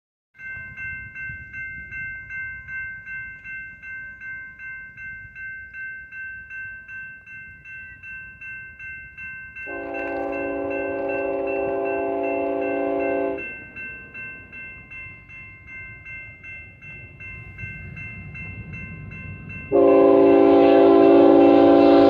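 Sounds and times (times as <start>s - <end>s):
railroad crossing bell dinging: 0.4s - 22.0s
locomotive air horn blast: 9.7s - 13.4s, 19.7s - 22.0s.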